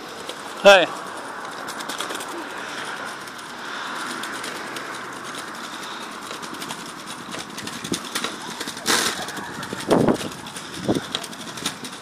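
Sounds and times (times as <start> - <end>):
scooter wheels rattling on bricks: 0.0 - 12.0.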